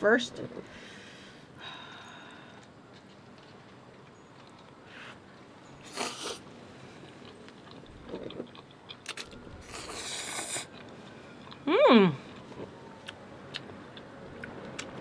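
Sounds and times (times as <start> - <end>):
chewing: 2.4 - 15.0
person slurping noodles: 5.9 - 6.4, 9.6 - 10.7.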